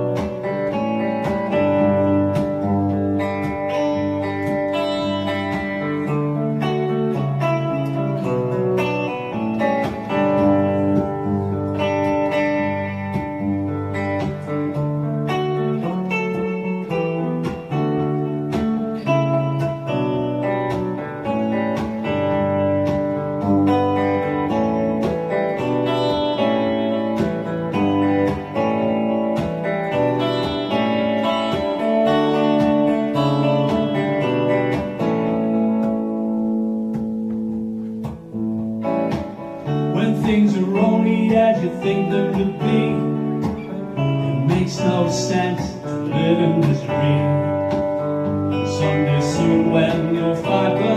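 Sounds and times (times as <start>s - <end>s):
electric guitar picked notes: 0.0s - 50.9s
man singing: 39.8s - 47.9s, 48.5s - 50.9s.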